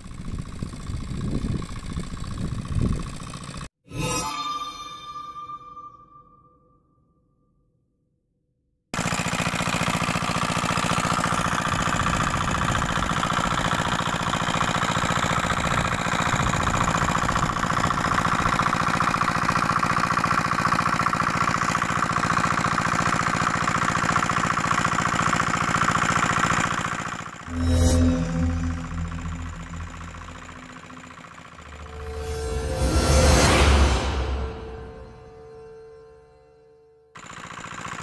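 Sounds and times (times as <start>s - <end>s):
diesel engine running: 0.0s - 3.7s, 9.0s - 35.9s.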